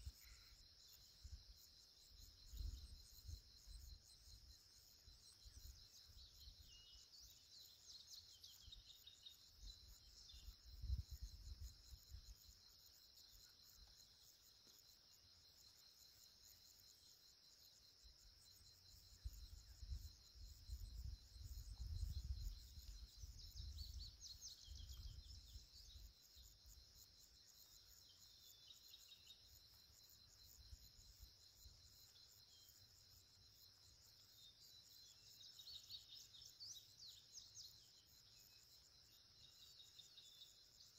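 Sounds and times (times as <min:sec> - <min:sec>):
insects trilling: 0:00.0 - 0:40.9
bird chirps: 0:02.4 - 0:11.4, 0:20.8 - 0:26.6, 0:33.8 - 0:40.9.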